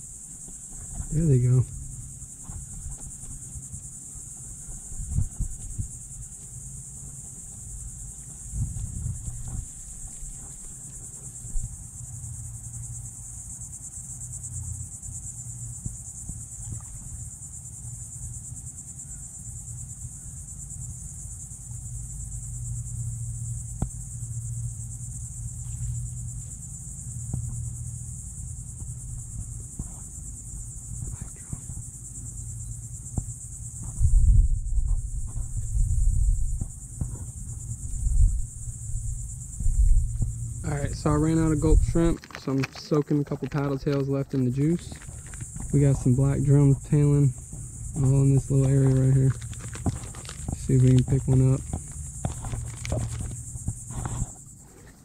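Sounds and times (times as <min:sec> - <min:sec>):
high-pitched insect chorus: 0:00.0 - 0:55.0
low steady rumble: 0:21.9 - 0:42.2, 0:43.4 - 0:54.4.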